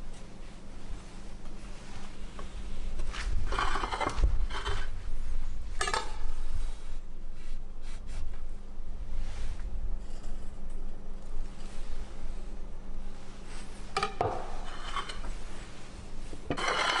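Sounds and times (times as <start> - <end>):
knife scraping wooden board: 16.6 - 17.0.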